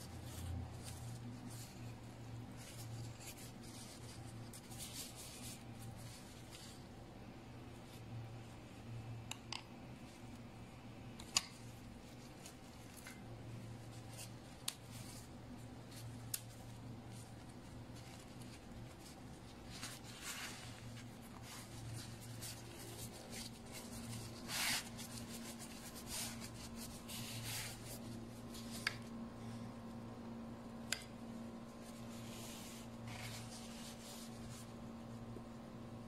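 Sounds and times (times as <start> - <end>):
flatbread and gloves crinkling: 11.3 - 29.2.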